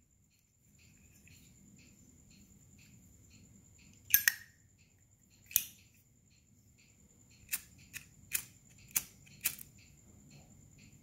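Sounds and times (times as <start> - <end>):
metal clicks: 3.9 - 4.5, 5.4 - 5.9
lighter lid clinking: 4.1 - 4.5.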